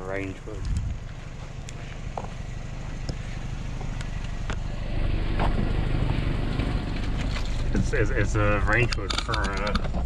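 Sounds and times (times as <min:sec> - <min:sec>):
van engine idling: 0:00.0 - 0:10.0
footsteps on concrete: 0:00.6 - 0:06.2.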